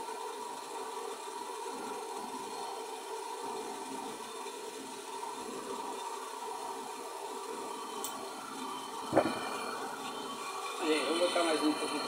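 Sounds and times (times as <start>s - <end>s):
gas torch hissing: 6.1s - 12.0s.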